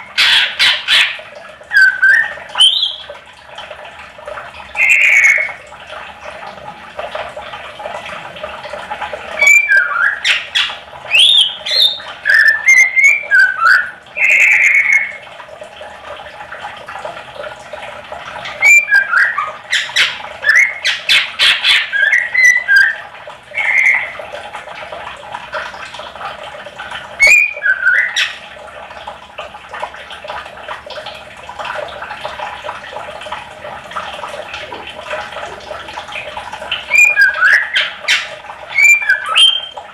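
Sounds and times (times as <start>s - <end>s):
bird whistling and chattering: 0.2s - 3.0s, 4.8s - 5.6s, 9.4s - 15.2s, 18.6s - 24.2s, 27.2s - 28.4s, 36.9s - 39.8s.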